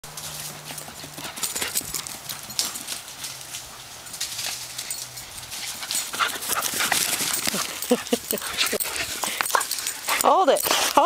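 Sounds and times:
footsteps on grass and mulch: 0.0 - 1.4, 2.2 - 7.7.

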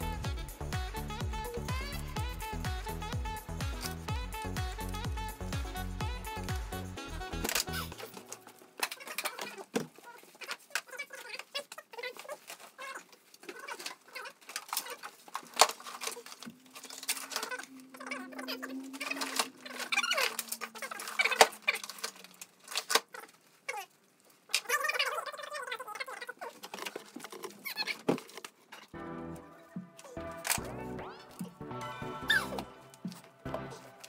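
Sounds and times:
handling parts and tools: 7.4 - 23.6, 26.0 - 29.0.

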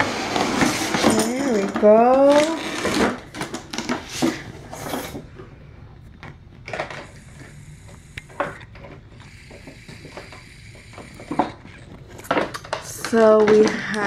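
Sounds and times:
plastic packaging rustling: 0.0 - 7.6, 8.3 - 14.0
sharp clicks: 6.1 - 14.0.

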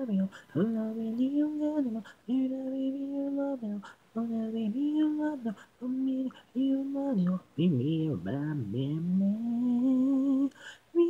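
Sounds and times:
person singing a cappella: 0.0 - 11.0
breaths: 0.3 - 0.6, 10.5 - 10.9.

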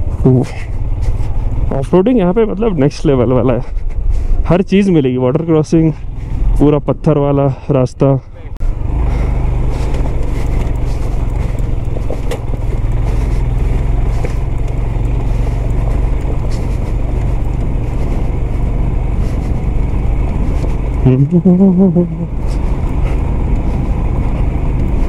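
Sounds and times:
motorcycle engine running: 0.0 - 4.4, 8.3 - 25.0
wind buffeting camera: 8.7 - 21.1
bike knocks and rattles: 10.0 - 15.0.

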